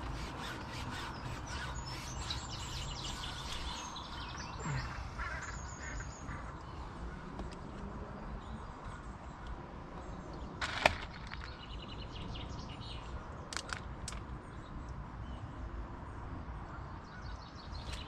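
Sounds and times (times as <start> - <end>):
birds chirping and calling: 0.0 - 7.0.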